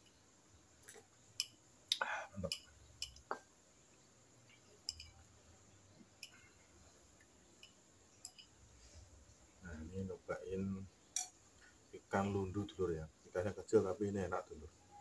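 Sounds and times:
glass mug and plate clinking: 4.9s - 5.3s, 7.6s - 8.6s.

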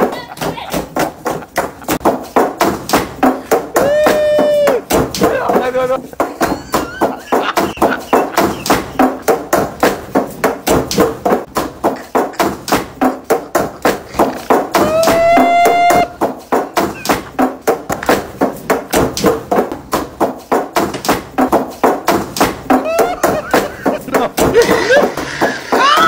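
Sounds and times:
pestles pounding dough: 0.0s - 26.0s
person holding a long note: 14.8s - 16.1s.

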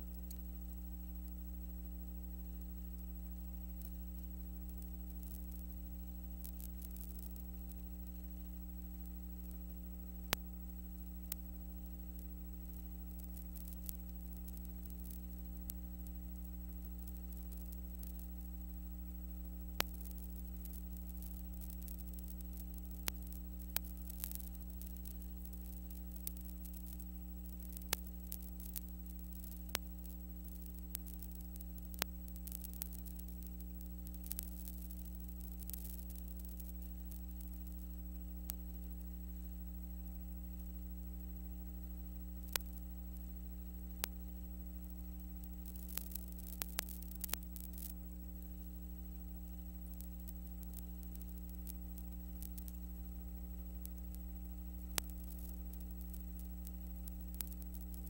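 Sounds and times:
electrical hum with hiss: 0.0s - 58.0s
sharp clicks and crackles: 0.0s - 58.0s.

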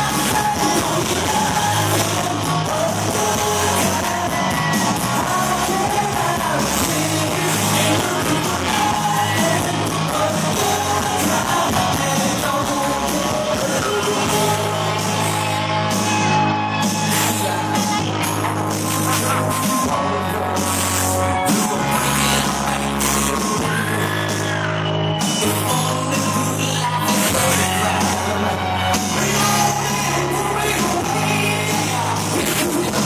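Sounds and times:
person singing: 0.0s - 16.2s, 16.8s - 33.0s
bass line: 0.0s - 33.0s
loud rock music: 0.0s - 33.0s.

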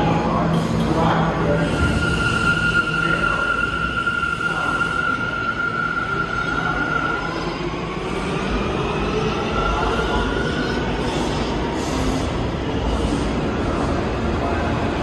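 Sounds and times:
subway train wheels rumbling on rails: 0.0s - 15.0s
high wheel squeal: 1.6s - 7.5s.

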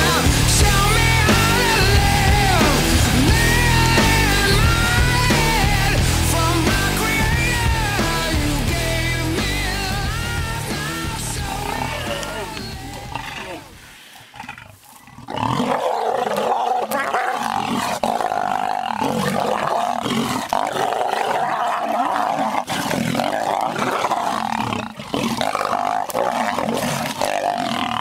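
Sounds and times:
lions snarling and growling: 11.5s - 28.0s.

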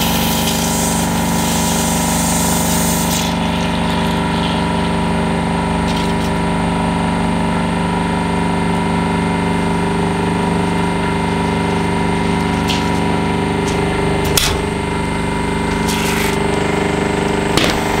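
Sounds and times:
hiss of escaping cream: 0.0s - 3.4s
hydraulic pump motor hum: 0.0s - 18.0s
aerosol can bursting pop: 17.5s - 18.0s.

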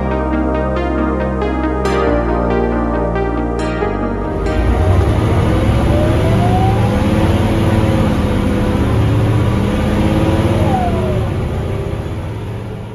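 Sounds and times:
engine whine: 4.1s - 12.9s
bus engine accelerating: 4.2s - 12.9s.

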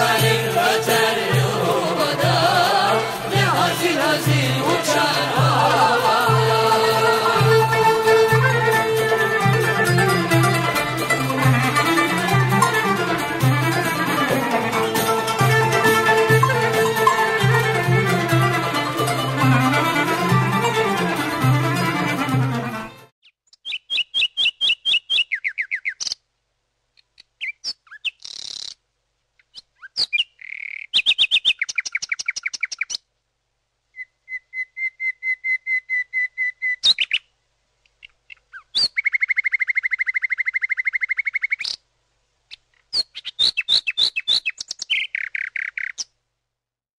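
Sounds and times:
nightingale singing: 23.2s - 26.2s, 27.0s - 28.8s, 29.4s - 33.1s, 33.9s - 41.9s, 42.5s - 46.2s.

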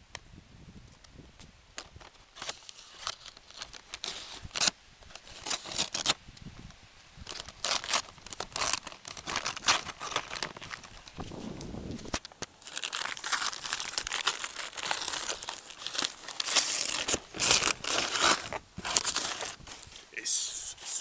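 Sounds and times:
cardboard and tape ripping: 2.4s - 6.2s, 7.3s - 19.9s.

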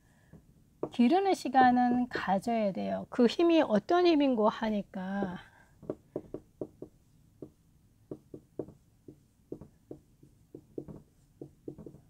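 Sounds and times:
marker pen writing on whiteboard: 5.2s - 12.0s.

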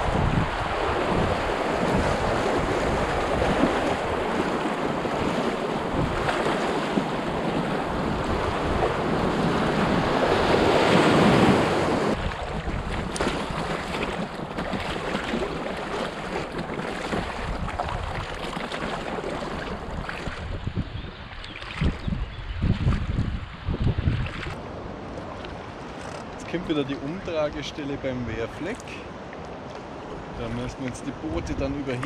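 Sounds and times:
wind buffeting microphone: 0.0s - 24.7s
river water rushing and splashing: 0.0s - 32.0s.

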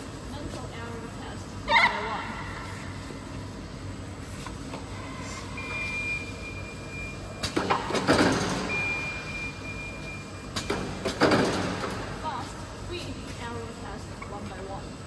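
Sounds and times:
conveyor line running: 0.0s - 15.0s
high alarm tone: 5.0s - 7.4s, 8.5s - 10.8s.

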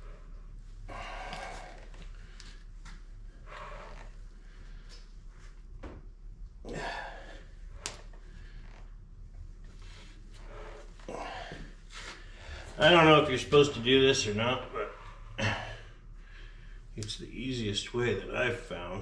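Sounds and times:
heavy breath: 0.0s - 2.7s, 6.7s - 7.6s, 9.8s - 12.8s.

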